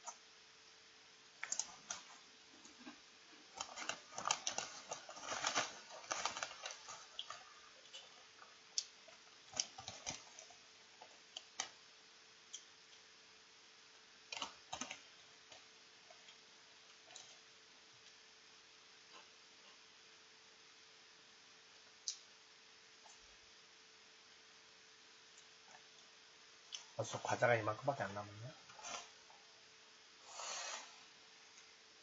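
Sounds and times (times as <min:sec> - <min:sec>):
faint steady hum: 0:00.0 - 0:32.0
foil chip bag crinkling: 0:01.4 - 0:10.6.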